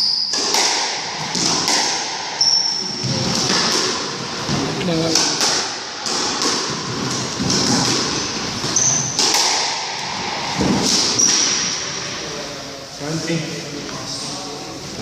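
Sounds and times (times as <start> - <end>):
squash ball knocks: 0.3 - 2.3, 3.0 - 11.8
shoes squeaking on wooden floor: 7.6 - 9.2, 10.6 - 11.7.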